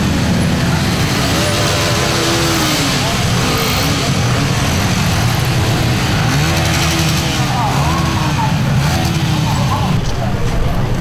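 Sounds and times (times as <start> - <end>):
motorcycle engines rumbling: 0.0 - 11.0
men calling out: 1.3 - 10.0.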